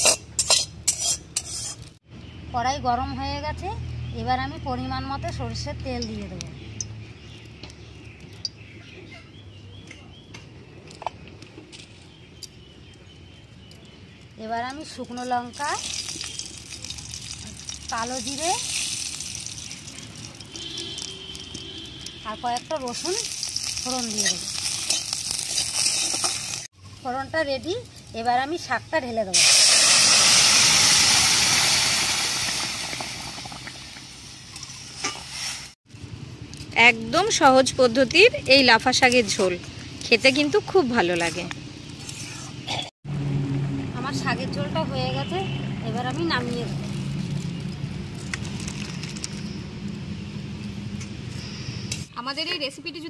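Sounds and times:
metal spatula scraping: 0.0s - 2.0s, 23.6s - 26.7s
birds chirping: 2.1s - 18.6s
loud sizzling hiss in a wok: 29.3s - 35.8s.

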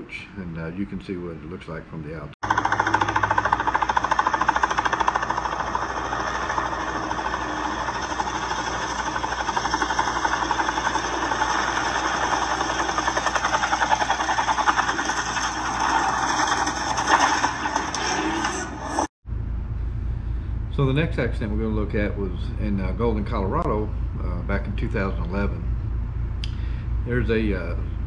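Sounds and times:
helicopter engine: 2.4s - 19.1s
helicopter rotor blades chopping: 2.4s - 19.1s.

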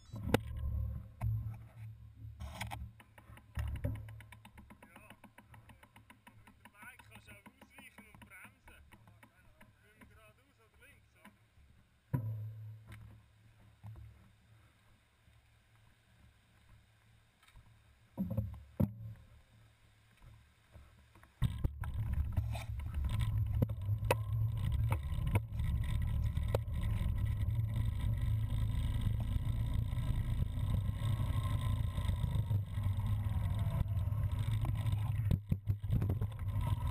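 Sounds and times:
bike tyres rumbling: 20.3s - 36.9s
thumps: 21.4s - 36.9s.

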